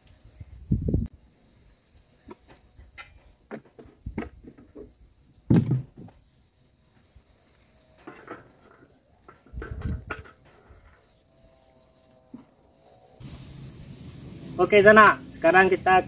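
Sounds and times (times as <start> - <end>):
knocks from handling equipment: 5.5 - 6.1.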